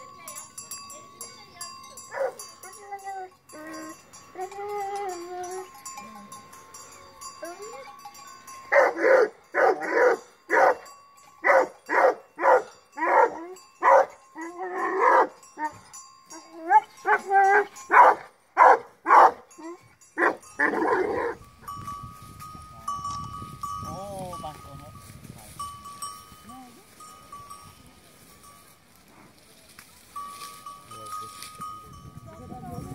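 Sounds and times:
dog barking: 2.1 - 2.4, 8.7 - 14.2, 14.8 - 15.4, 17.1 - 19.5, 20.2 - 21.3.

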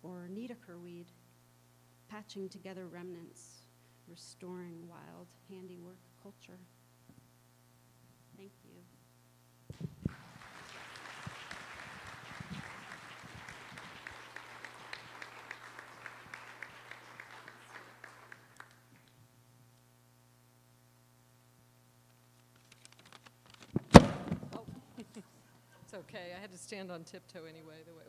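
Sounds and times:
low electrical hum: 0.0 - 28.0
microphone being handled: 9.7 - 10.2, 22.2 - 25.1
audience applauding: 10.0 - 19.2.

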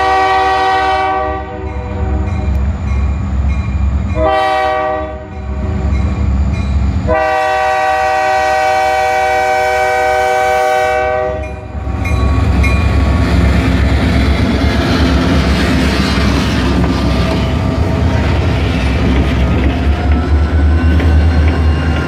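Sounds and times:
locomotive air horn: 0.0 - 2.4, 4.2 - 5.8, 7.0 - 11.6
locomotive engine rumble: 11.2 - 22.0
train clattering past: 11.2 - 22.0.

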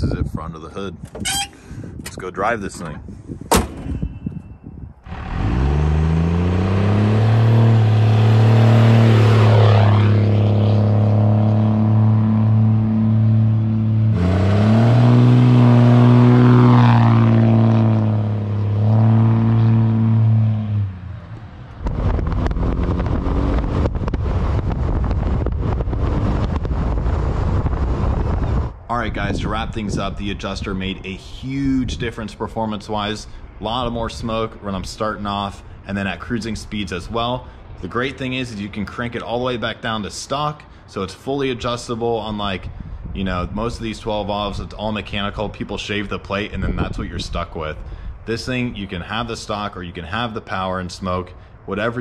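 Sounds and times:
wind rushing over microphone: 0.0 - 39.5, 41.4 - 49.7
diesel truck engine at full throttle: 5.0 - 30.1.

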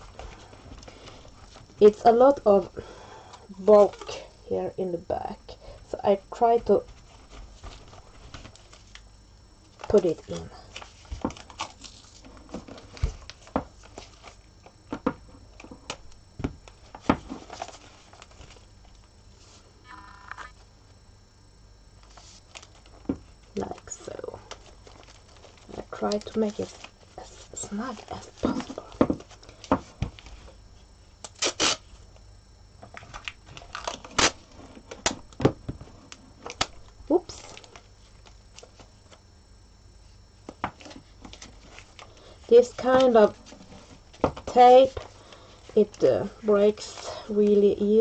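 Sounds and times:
tape rustling: 6.6 - 19.6, 22.0 - 30.6, 31.2 - 32.0, 32.8 - 39.2, 40.4 - 46.0.

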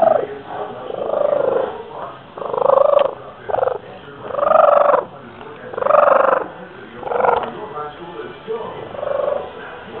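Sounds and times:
cat purring loudly: 0.0 - 5.1, 5.7 - 7.6, 8.8 - 9.6.

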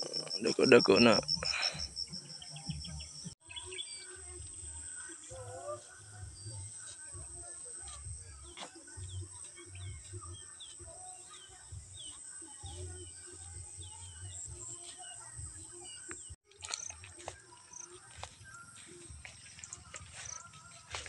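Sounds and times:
high-pitched insect drone: 0.0 - 3.4
birds chirping: 0.0 - 21.0.

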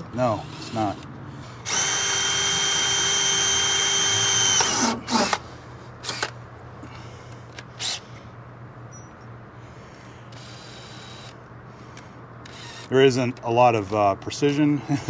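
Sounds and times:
cordless drill whine: 0.3 - 1.0, 1.6 - 5.4, 10.3 - 11.4, 12.4 - 12.9.

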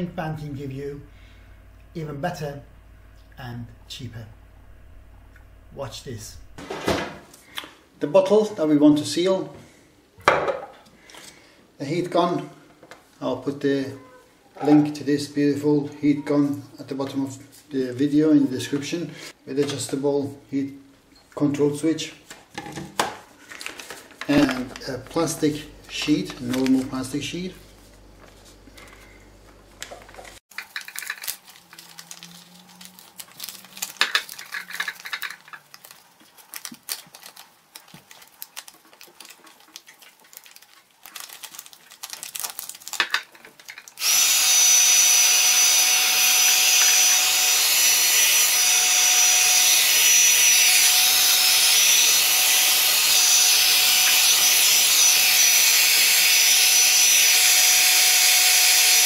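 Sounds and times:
plastic sheet crinkling: 23.2 - 27.1, 29.8 - 44.0
heat gun blowing and whining: 44.0 - 59.0.

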